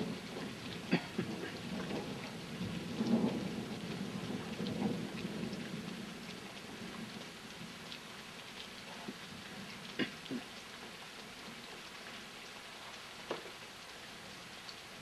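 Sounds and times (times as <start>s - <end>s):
low rumble of thunder: 0.0s - 10.1s
raindrops striking close by: 0.0s - 15.0s
steady rain falling: 0.0s - 15.0s.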